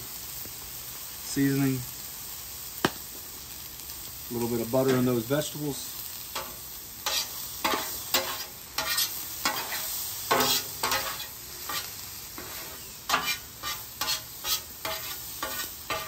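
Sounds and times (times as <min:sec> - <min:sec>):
vegetables sizzling: 0:00.0 - 0:16.0
metal spatula scraping griddle: 0:06.3 - 0:16.0.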